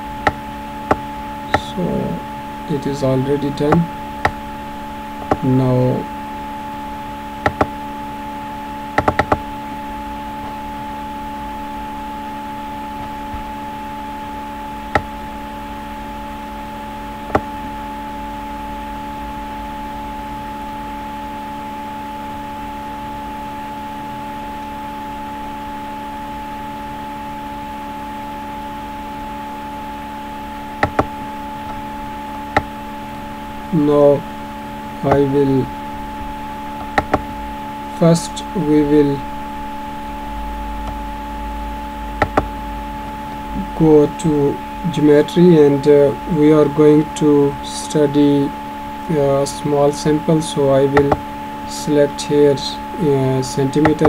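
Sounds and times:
steady background hum: 0:00.0 - 0:54.0
computer mouse clicks: 0:07.4 - 0:07.7, 0:09.0 - 0:09.4.

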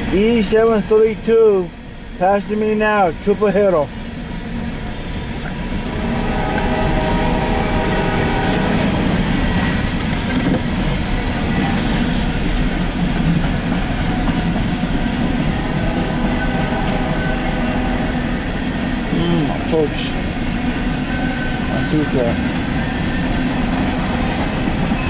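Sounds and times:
freight train wheels rumbling on rails: 0:00.0 - 0:25.0.

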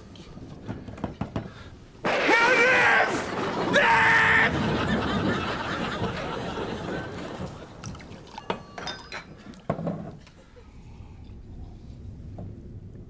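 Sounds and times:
man shrieking: 0:02.2 - 0:04.6.

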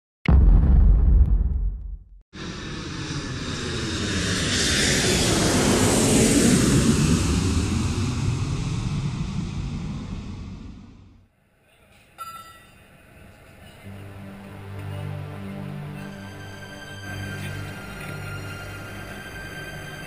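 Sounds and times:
deep boom: 0:00.2 - 0:11.2
jet airliner passing overhead: 0:02.4 - 0:11.2, 0:15.4 - 0:20.0.

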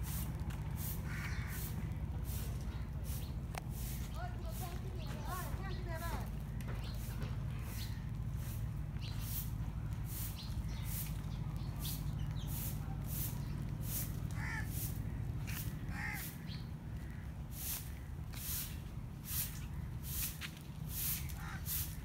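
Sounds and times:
crow cawing: 0:01.0 - 0:01.8, 0:14.3 - 0:17.4, 0:21.3 - 0:22.0.

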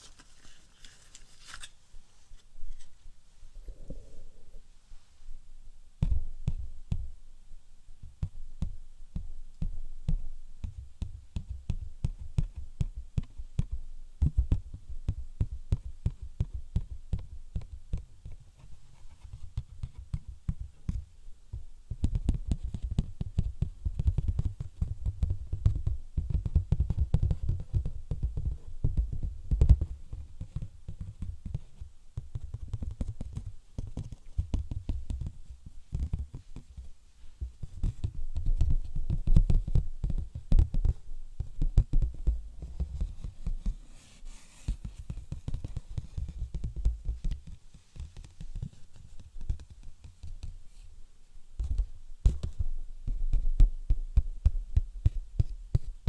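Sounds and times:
hand tapping on an object: 0:21.9 - 0:50.6, 0:51.6 - 0:56.0.

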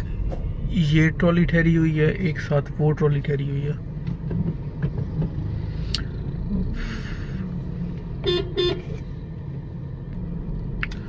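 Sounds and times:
engine and road rumble in car: 0:00.0 - 0:11.0
vehicle horn toots: 0:08.2 - 0:09.0.

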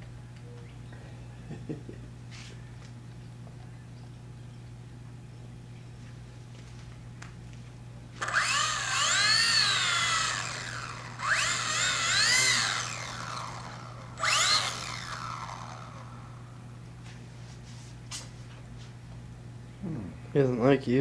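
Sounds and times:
model plane electric motor whine: 0:08.2 - 0:16.8.

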